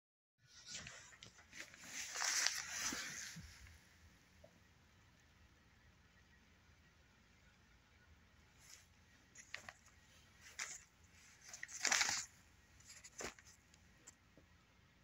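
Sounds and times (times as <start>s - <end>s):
newspaper pages rustling: 0.6s - 3.7s, 8.6s - 13.8s.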